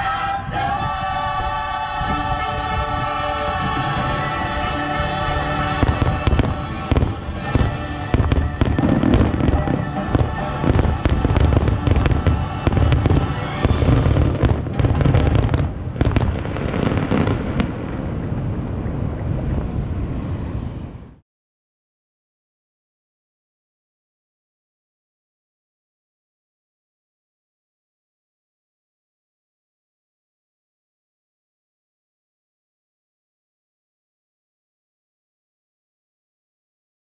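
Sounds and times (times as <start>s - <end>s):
held music chord: 0.0s - 15.1s
fireworks bangs and booms: 5.6s - 20.5s.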